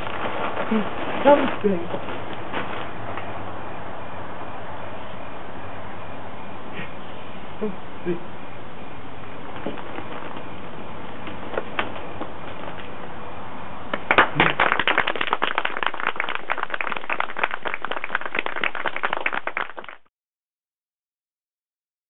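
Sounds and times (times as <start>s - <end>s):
audience applause: 13.9s - 20.1s.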